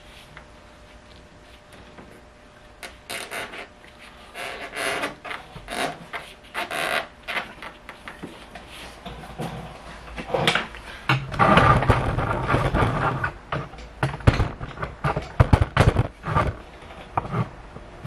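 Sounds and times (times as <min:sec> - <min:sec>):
sharp knocks and clicks: 0:10.4 - 0:16.6.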